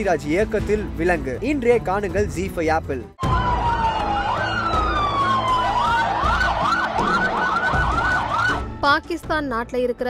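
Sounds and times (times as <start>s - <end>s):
ambulance sirens wailing: 3.2s - 8.8s.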